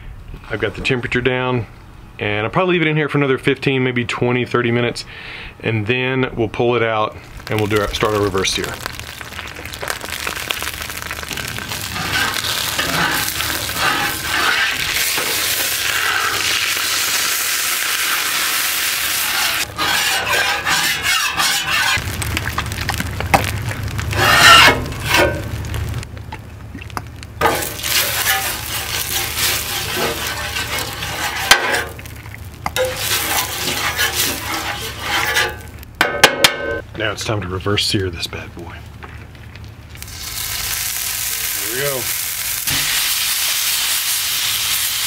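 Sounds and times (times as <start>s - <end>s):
liquid hissing on hot plate: 7.2s - 20.8s, 27.4s - 35.8s, 40.0s - 45.0s
hot griddle sizzling: 7.2s - 36.6s, 39.3s - 45.0s
cloth pad scraping griddle: 11.5s - 16.8s, 17.8s - 22.0s, 24.1s - 25.4s, 27.4s - 32.0s, 32.8s - 35.7s.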